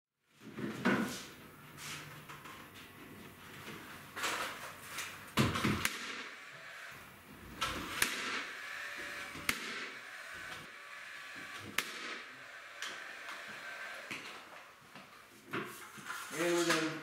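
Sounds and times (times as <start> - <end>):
nail gun shots: 5.6 - 6.4, 7.9 - 10.7, 11.6 - 13.0.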